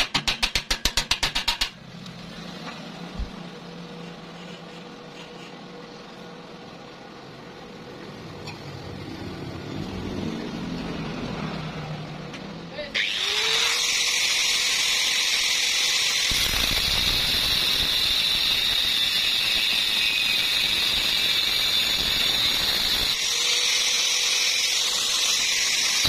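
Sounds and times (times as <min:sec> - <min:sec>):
angle grinder cutting steel: 0:12.9 - 0:26.0.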